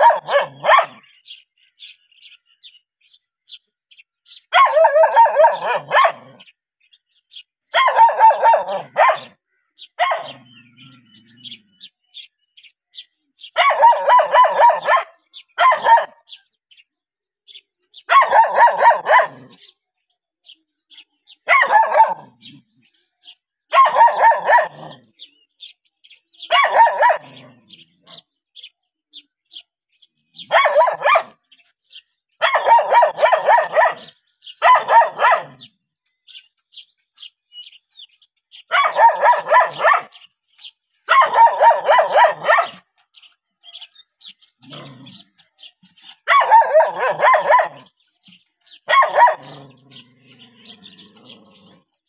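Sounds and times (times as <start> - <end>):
faint bird chirps: 4.5 - 12.7, 17.5 - 51.9
young dog howl-like barking: 41.1 - 42.8, 46.3 - 47.9, 48.9 - 49.8.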